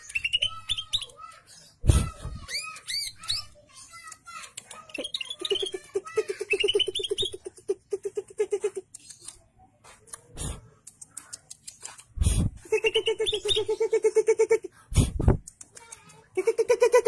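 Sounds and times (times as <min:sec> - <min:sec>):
higher bird chirping: 0:00.0 - 0:04.0, 0:04.8 - 0:05.8, 0:06.4 - 0:07.4, 0:12.7 - 0:13.9.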